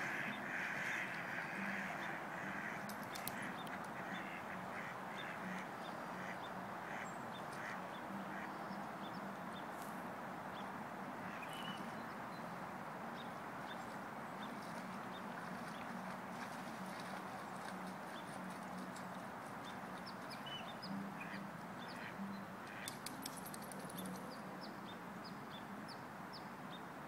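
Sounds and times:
ducks quacking: 0:00.0 - 0:09.3, 0:19.6 - 0:23.0
steady background hiss: 0:00.0 - 0:27.0.

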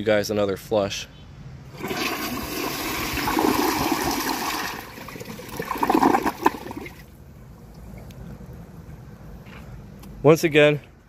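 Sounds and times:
toilet flushing: 0:01.8 - 0:07.0.

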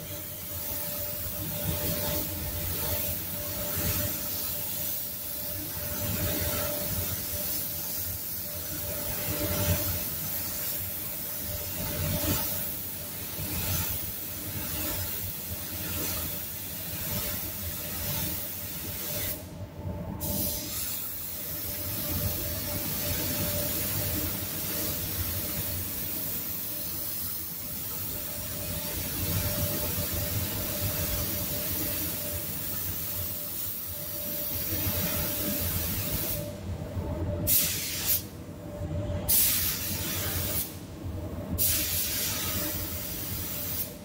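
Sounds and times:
spray gun hissing: 0:00.0 - 0:11.8, 0:20.2 - 0:36.5, 0:37.5 - 0:38.2, 0:39.3 - 0:40.8, 0:41.6 - 0:44.0.

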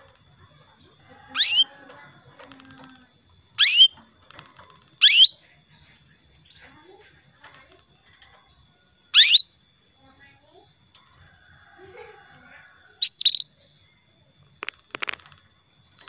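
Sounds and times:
canary rising calls: 0:01.2 - 0:01.8, 0:02.8 - 0:04.0, 0:04.9 - 0:05.4, 0:09.1 - 0:09.5.

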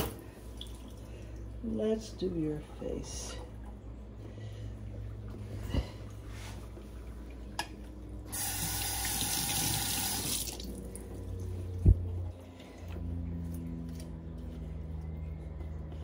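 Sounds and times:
tap water running into sink: 0:08.3 - 0:10.8.

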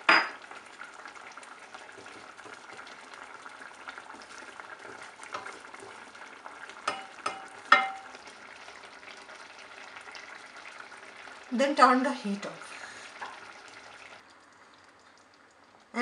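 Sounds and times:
curry bubbling in a pan: 0:00.0 - 0:16.0
wooden spatula stirring: 0:01.4 - 0:08.0
spatula knocking against pan: 0:06.8 - 0:08.1.

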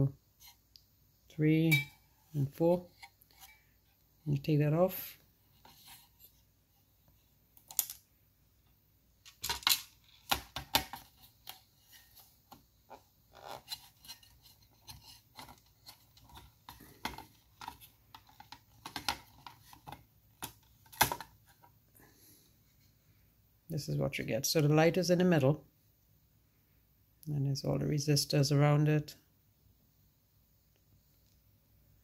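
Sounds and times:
hands clicking and tapping plastic: 0:16.2 - 0:21.3.

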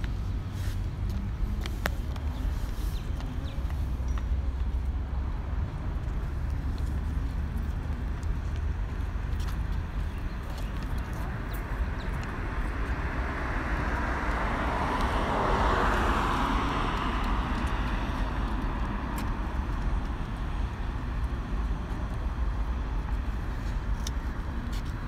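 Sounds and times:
low traffic rumble: 0:00.0 - 0:25.0
vehicle passing: 0:10.8 - 0:19.8.

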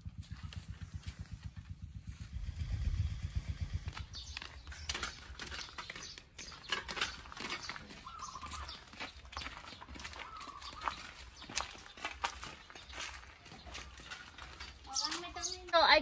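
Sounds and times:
footsteps on dirt path: 0:00.0 - 0:02.8, 0:03.6 - 0:16.0
low rumble on microphone: 0:00.0 - 0:04.8
bamboo baskets knocking and rattling: 0:03.8 - 0:16.0.

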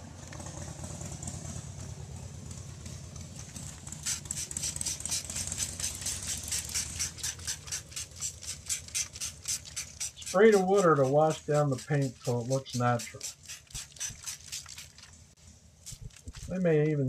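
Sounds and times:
spray bottle squirting water: 0:03.8 - 0:17.0.

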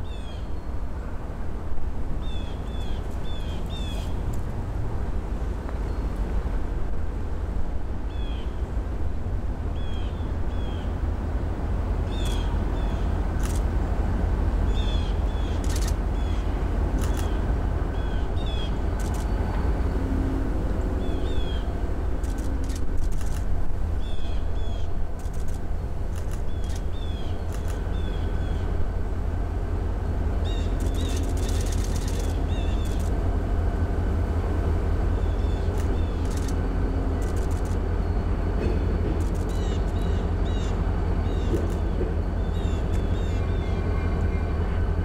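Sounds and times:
locomotive low rumble: 0:00.0 - 0:45.0
sharp clicks: 0:15.6 - 0:16.0, 0:17.0 - 0:17.4, 0:22.2 - 0:23.5, 0:25.2 - 0:27.9, 0:30.8 - 0:33.2, 0:35.7 - 0:36.6, 0:37.2 - 0:37.9, 0:39.2 - 0:40.1
bird chirping: 0:30.4 - 0:33.0.

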